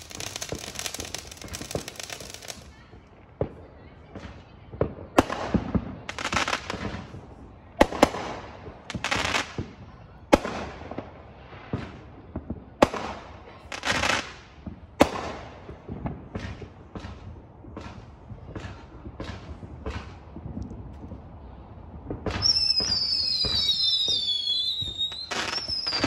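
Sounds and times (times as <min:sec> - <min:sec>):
fireworks bangs: 0:00.0 - 0:26.0
fireworks crackling and fizzing: 0:00.0 - 0:26.0.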